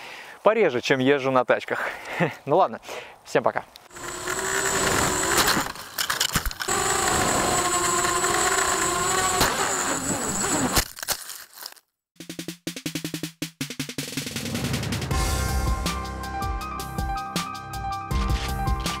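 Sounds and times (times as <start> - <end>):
drone motors whining: 3.9 - 10.9
drum-led music: 12.2 - 19.0.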